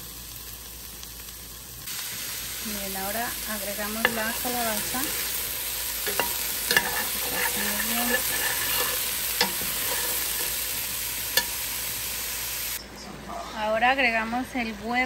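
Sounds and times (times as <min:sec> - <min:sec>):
vegetables sizzling in oil: 0:00.0 - 0:12.8
metal spoon clinking on pot: 0:04.0 - 0:04.9, 0:06.0 - 0:10.6, 0:11.4 - 0:11.6.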